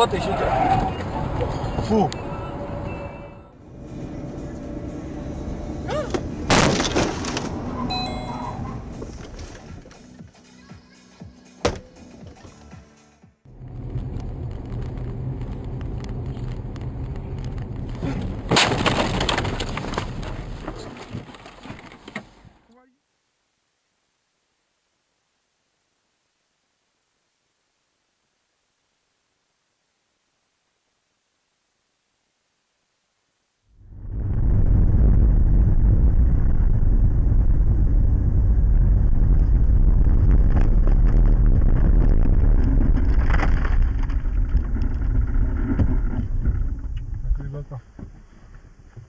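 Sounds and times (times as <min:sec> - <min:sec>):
car driving heard from inside: 0:00.0 - 0:06.5, 0:13.5 - 0:18.5
car rumbling on snowy road: 0:00.0 - 0:09.9, 0:13.5 - 0:22.6, 0:33.8 - 0:49.0
ice chunks hitting car: 0:06.5 - 0:07.5, 0:18.4 - 0:21.7
snow slamming into windshield: 0:18.2 - 0:21.2.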